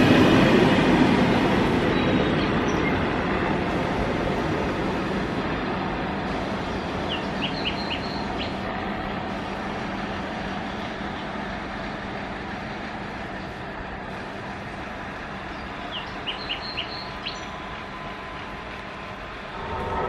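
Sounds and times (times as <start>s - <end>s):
passenger train rumbling on rails: 0.0s - 20.0s
bird chirps: 7.1s - 8.6s, 15.6s - 17.5s.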